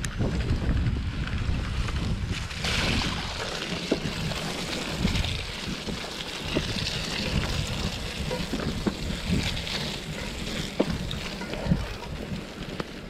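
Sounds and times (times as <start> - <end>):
low rumble: 0.0 - 3.4
wind rushing over microphone: 0.0 - 13.0.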